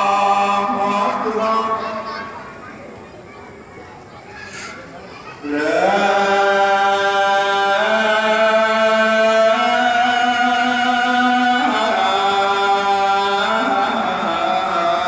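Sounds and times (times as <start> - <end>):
man chanting: 0.0 - 2.4, 5.4 - 15.0.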